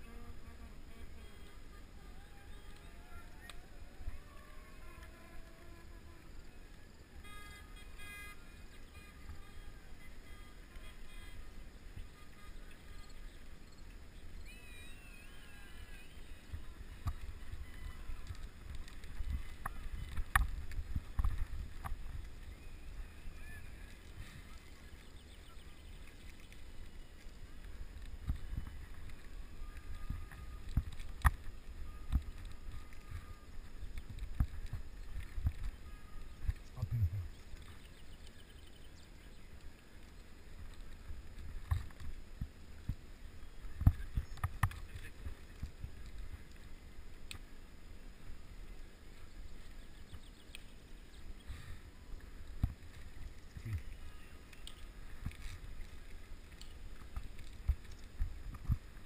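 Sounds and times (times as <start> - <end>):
wind and road rumble: 15.7 - 59.0.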